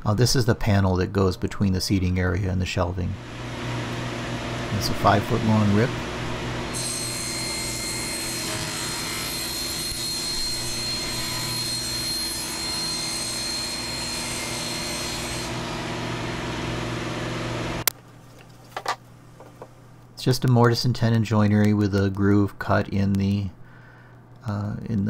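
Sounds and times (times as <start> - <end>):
table saw motor hum: 3.2 - 17.9
saw blade cutting plywood: 6.6 - 16.1.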